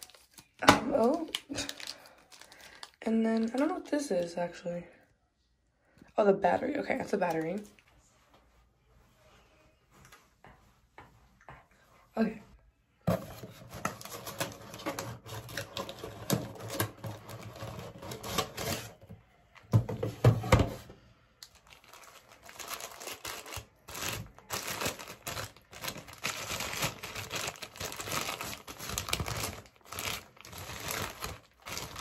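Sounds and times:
paper crinkling and rustling: 0:00.0 - 0:03.9, 0:13.1 - 0:20.8, 0:21.4 - 0:32.0.

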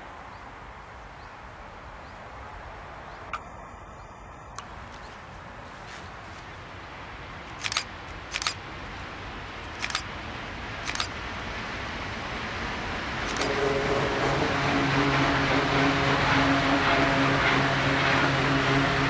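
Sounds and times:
low hum: 0:02.4 - 0:19.0
train wheels rumbling on rail: 0:05.0 - 0:19.0
sharp metallic clacks: 0:07.5 - 0:08.6.

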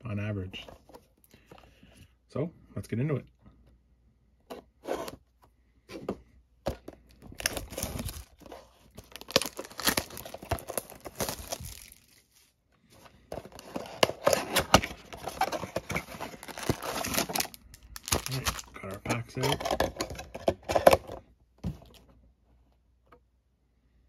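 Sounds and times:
cardboard box rustling: 0:06.7 - 0:12.4, 0:13.3 - 0:21.0
shrink wrap crinkling and tearing: 0:07.1 - 0:12.6, 0:13.5 - 0:20.1.

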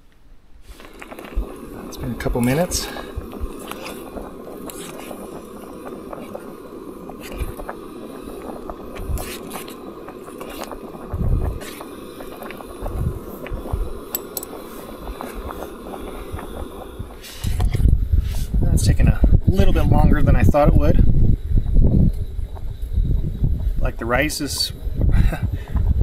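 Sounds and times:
stove burner running: 0:00.6 - 0:26.0
metal spoon scraping pot: 0:14.1 - 0:14.6.

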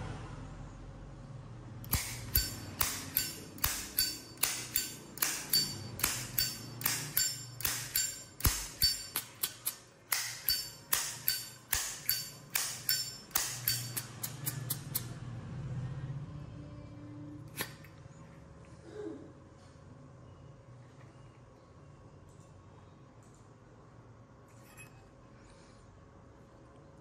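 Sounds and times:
lighter lid metallic clinks: 0:01.9 - 0:15.1.

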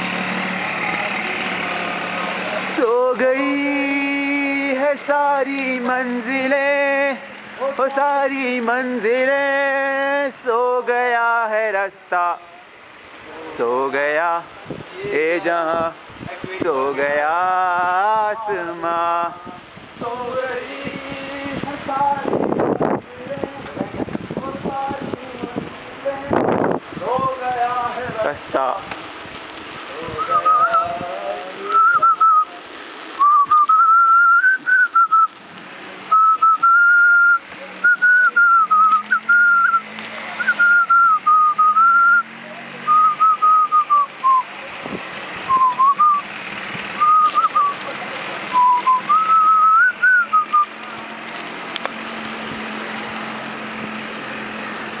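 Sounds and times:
person whistling a tune: 0:30.2 - 0:30.9, 0:31.8 - 0:32.5, 0:33.2 - 0:35.3, 0:36.1 - 0:39.8, 0:40.4 - 0:42.3, 0:42.9 - 0:44.5, 0:45.5 - 0:46.2, 0:47.0 - 0:47.8, 0:48.5 - 0:50.7.

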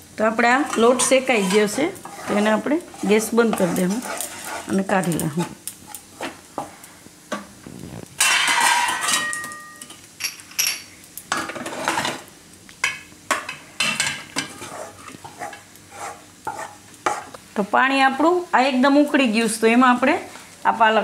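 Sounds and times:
spatula scraping metal pan: 0:00.6 - 0:06.7, 0:13.8 - 0:17.4.

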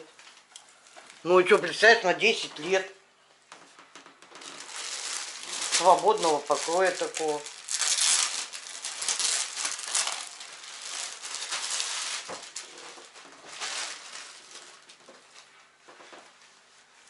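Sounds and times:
plastic packaging crinkling: 0:04.2 - 0:15.5.

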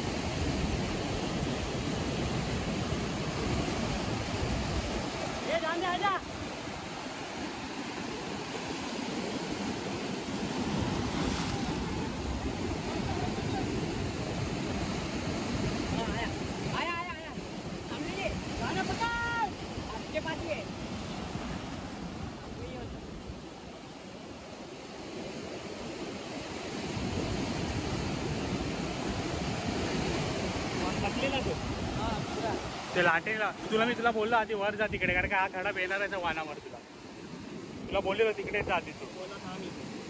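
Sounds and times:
sea surf breaking on rocks: 0:00.0 - 0:40.0.

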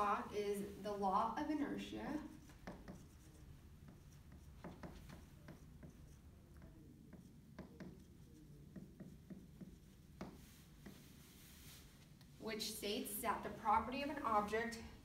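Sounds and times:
marker writing on whiteboard: 0:00.0 - 0:12.3.

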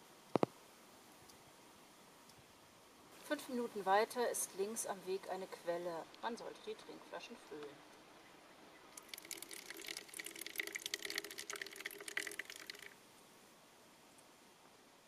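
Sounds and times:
spring water running and splashing: 0:08.9 - 0:13.0.

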